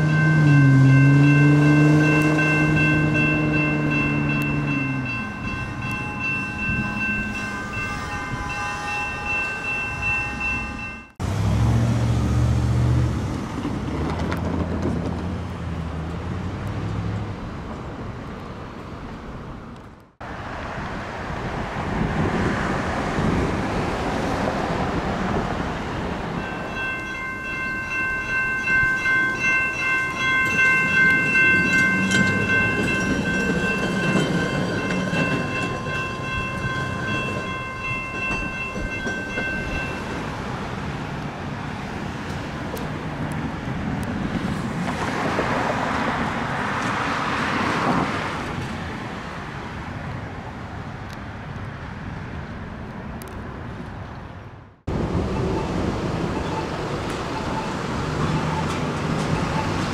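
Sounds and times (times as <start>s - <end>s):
horn sounding long chord: 0.0s - 11.2s.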